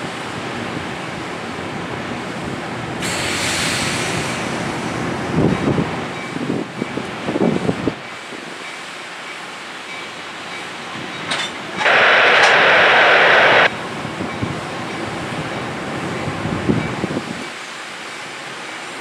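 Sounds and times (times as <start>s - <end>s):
train moving along track: 0.0s - 19.0s
loud hiss burst: 11.8s - 13.7s.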